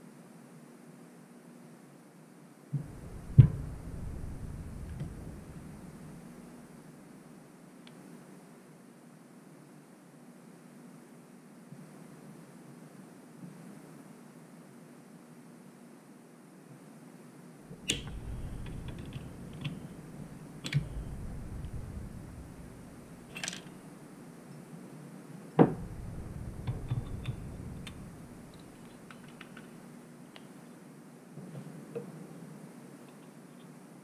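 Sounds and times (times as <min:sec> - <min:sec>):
low rumble of handling: 0:02.8 - 0:06.8, 0:17.7 - 0:23.9, 0:25.6 - 0:29.8
small metal clicks and knocks: 0:23.2 - 0:23.8.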